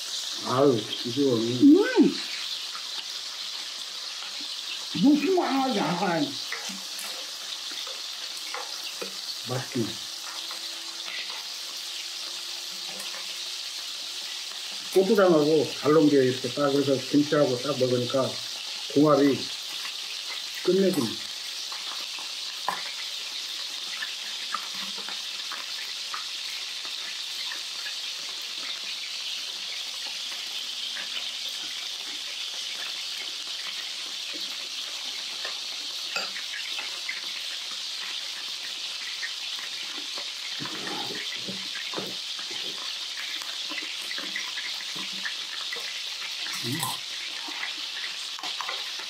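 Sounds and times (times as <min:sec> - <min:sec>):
meat sizzling in a frying pan: 0:00.0 - 0:49.0
utensils clicking against bowls: 0:12.8 - 0:13.4.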